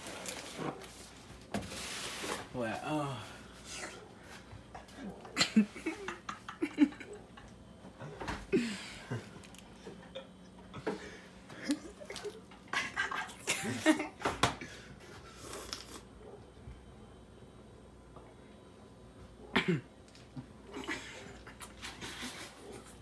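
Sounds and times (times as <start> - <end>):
people laughing: 5.4 - 7.5, 11.5 - 14.3.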